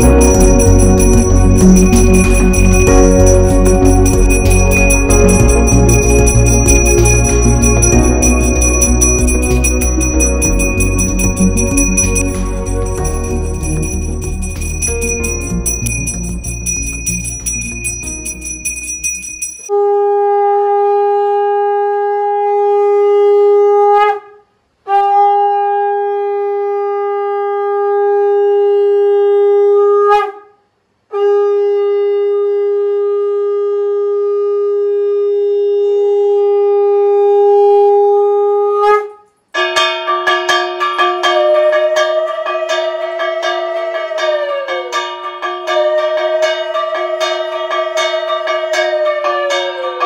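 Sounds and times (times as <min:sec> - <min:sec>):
conch shell blasts: 0:00.0 - 0:18.7.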